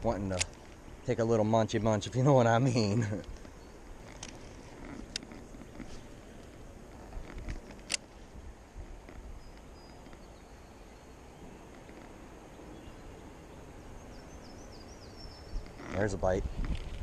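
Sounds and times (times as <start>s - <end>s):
faint high bird chirps: 9.4s - 16.2s.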